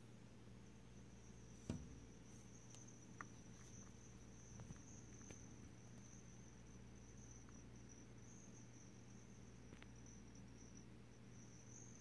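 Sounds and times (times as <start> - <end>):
soft knock: 1.6 - 2.1.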